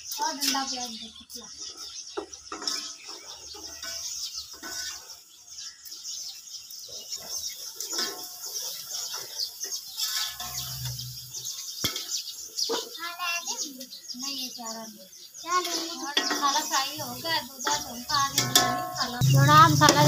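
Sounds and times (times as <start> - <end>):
small birds chirping: 0.0 - 20.0
spoon stirring in a steel pot: 7.8 - 11.3, 16.2 - 20.0.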